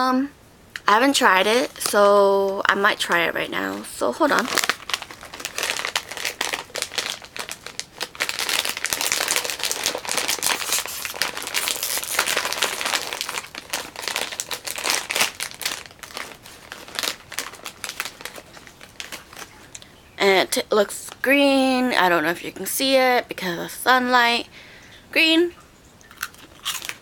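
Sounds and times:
plastic snack bag crinkling: 1.1s - 20.0s, 26.0s - 27.0s.

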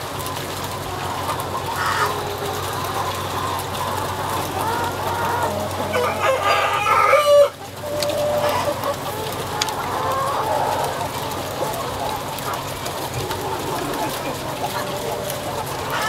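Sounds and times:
chickens clucking: 0.0s - 16.0s
rooster crowing: 5.4s - 7.6s.

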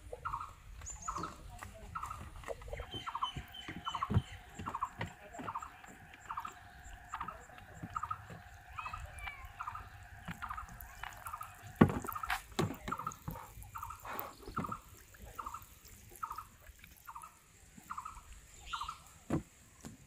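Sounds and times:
knocks and thumps on bamboo raft: 0.7s - 8.8s, 10.2s - 13.6s, 19.2s - 20.0s.

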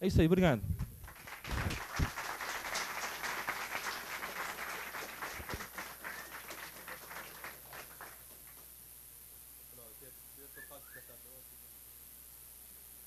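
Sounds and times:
audience applauding: 1.0s - 8.7s.

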